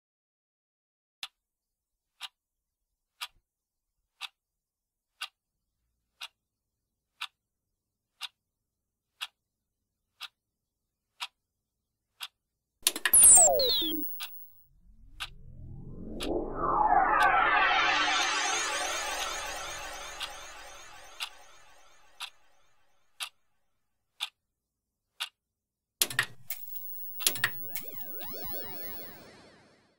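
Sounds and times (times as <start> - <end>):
television noise burst with whistles: 13.1 - 14.3, 26.5 - 29.4.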